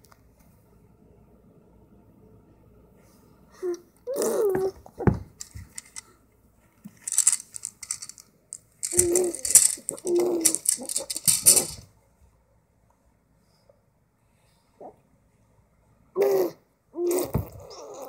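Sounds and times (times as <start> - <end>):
baby grunting and cooing: 4.1 - 4.8, 16.2 - 18.0
plastic rattle toy shaking: 5.4 - 6.0, 6.9 - 11.9.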